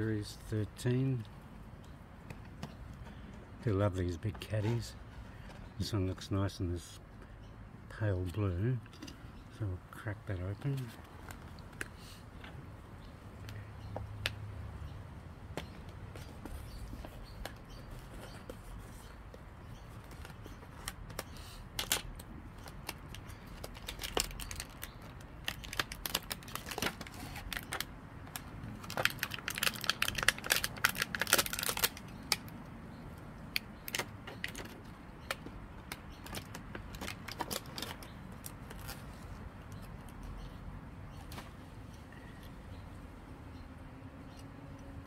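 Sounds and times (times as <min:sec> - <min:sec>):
plastic and card packaging crinkling: 0:19.9 - 0:32.5, 0:33.5 - 0:40.1.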